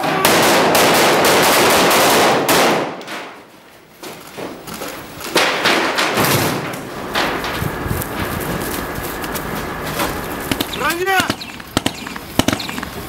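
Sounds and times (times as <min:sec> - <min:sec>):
rifle gunfire indoors: 0:00.1 - 0:03.3, 0:10.5 - 0:12.8.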